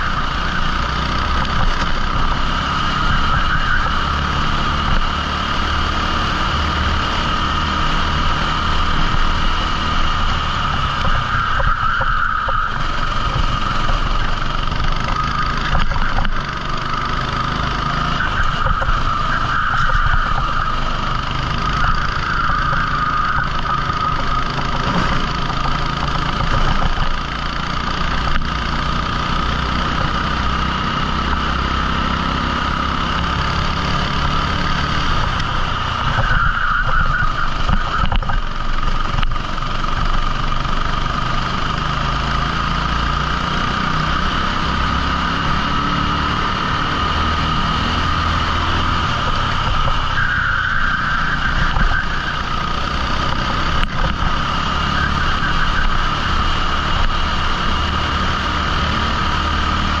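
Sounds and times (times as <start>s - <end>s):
kart engine running: 0.0s - 60.0s.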